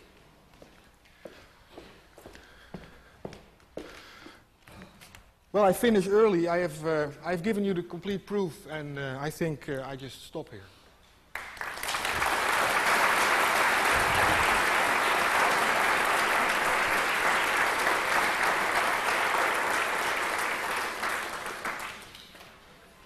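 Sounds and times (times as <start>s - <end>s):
audience applauding: 11.3s - 22.6s.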